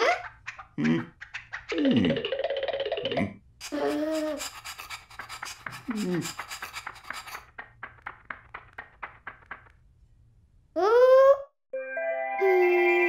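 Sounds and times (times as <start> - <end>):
cartoon brush strokes: 3.6 - 9.8.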